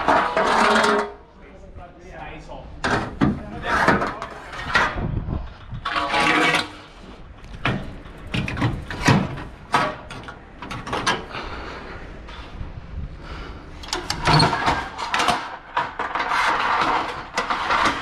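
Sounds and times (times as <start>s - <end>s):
metal knocks and clanks: 7.5s - 11.3s
metal rattle: 7.5s - 11.3s.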